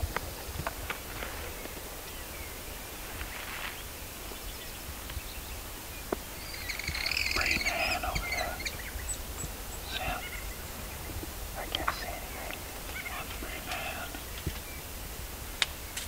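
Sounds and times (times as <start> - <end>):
low rumble of wind: 0.0 - 16.0
bird calling rapid notes: 6.4 - 10.6.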